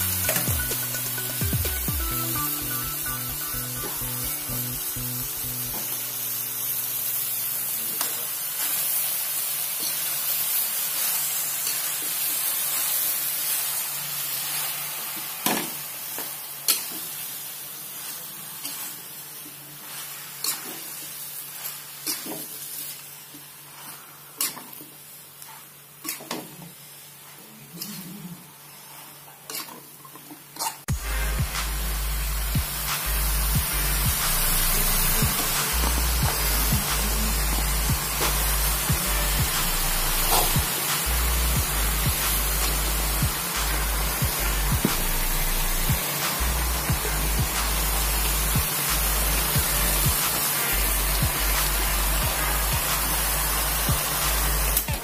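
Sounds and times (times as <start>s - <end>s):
food sizzling in a wok: 0.0s - 55.0s.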